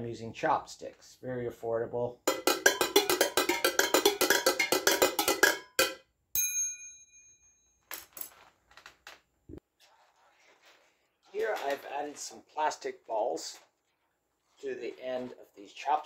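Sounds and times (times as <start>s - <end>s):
chopsticks striking tin cans: 2.3s - 6.0s
ringing metal fitting strike: 2.3s - 7.6s.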